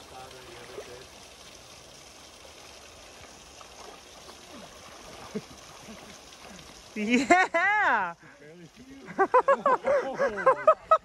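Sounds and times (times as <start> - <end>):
water gurgling around legs: 0.0 - 7.8
river flowing over gravel: 0.0 - 10.9.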